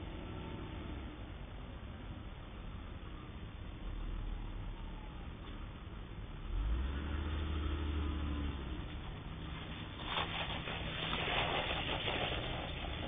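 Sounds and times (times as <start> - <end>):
car engine hum: 0.0 - 13.0
tyres crackling on driveway: 5.4 - 13.0.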